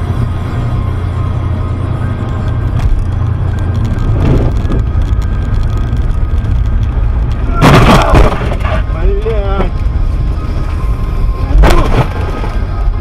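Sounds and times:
car road and engine rumble: 0.0s - 13.0s
loud crunching car impact: 7.5s - 8.9s, 11.5s - 12.5s.

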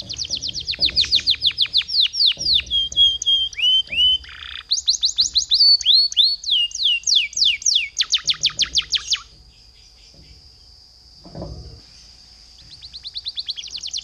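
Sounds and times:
canary singing trills: 0.0s - 10.8s, 11.8s - 14.0s.

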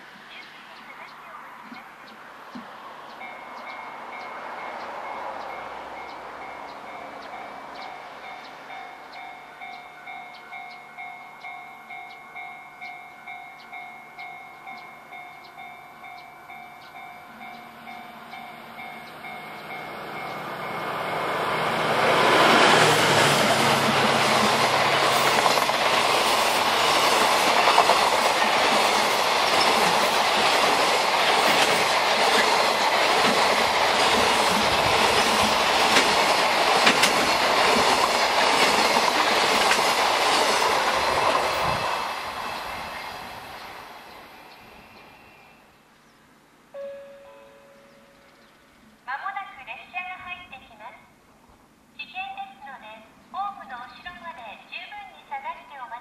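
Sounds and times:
diesel locomotive passing: 0.0s - 45.8s
railway warning bell dinging: 3.1s - 43.0s, 46.8s - 48.5s
train wheels clattering: 16.2s - 43.0s.

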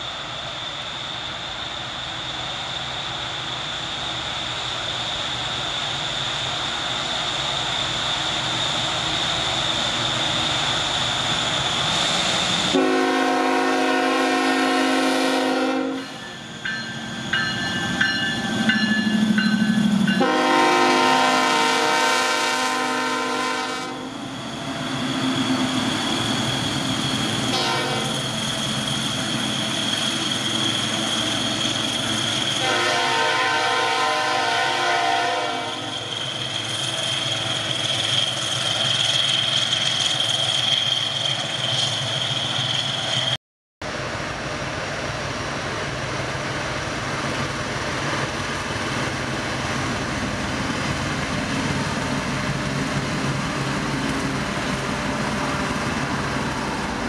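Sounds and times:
train wheels on rails: 0.0s - 57.0s
diesel locomotive horn blasts: 12.7s - 16.2s, 20.1s - 24.2s, 27.5s - 28.2s, 32.6s - 35.9s.

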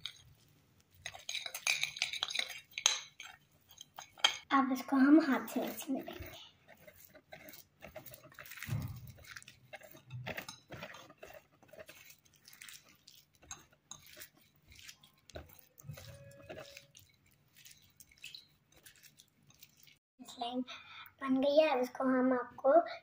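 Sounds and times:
slime squishing: 4.9s - 20.0s.

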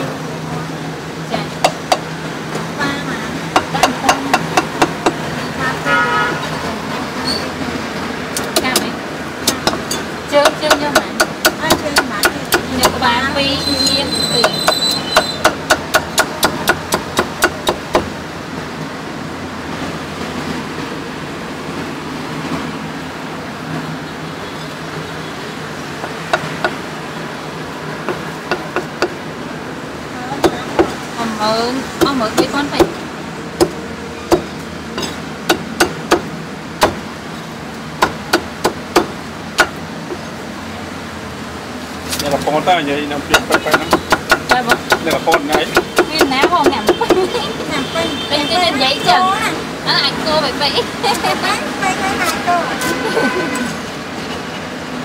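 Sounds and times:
cleaver chopping on wooden block: 8.4s - 13.0s, 14.4s - 18.1s, 33.6s - 37.0s, 38.0s - 39.8s, 43.3s - 47.2s.

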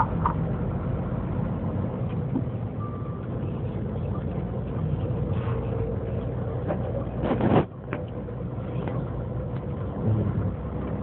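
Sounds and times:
truck engine drone: 0.0s - 11.0s
high beep: 2.8s - 3.2s.

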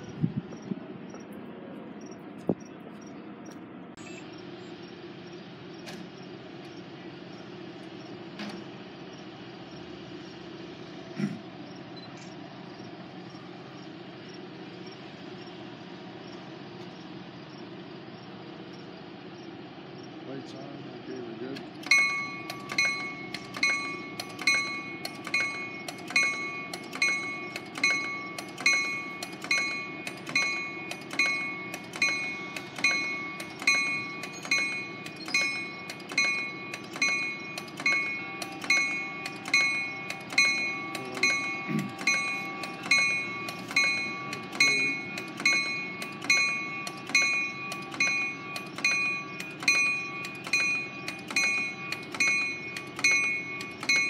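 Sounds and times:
low diesel rumble: 0.0s - 54.0s
train bell ringing: 21.3s - 54.0s.

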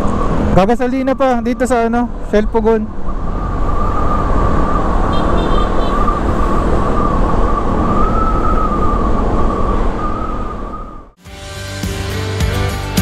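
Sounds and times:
wind noise: 0.0s - 11.2s.

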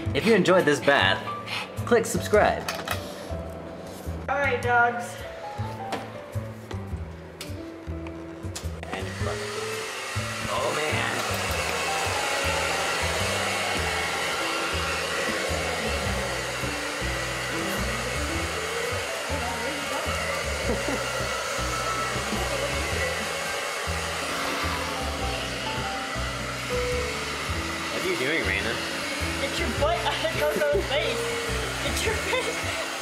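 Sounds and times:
hair dryer blowing: 8.8s - 33.0s.

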